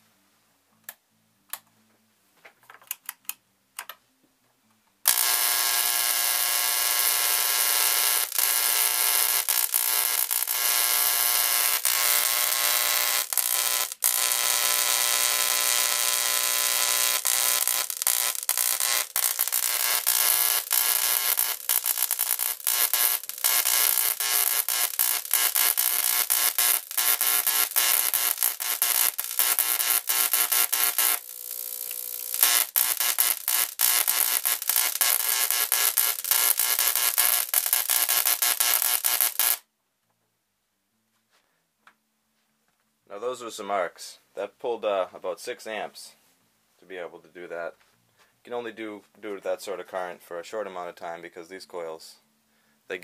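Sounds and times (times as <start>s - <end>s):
electric arc buzzing: 5.0s - 39.7s.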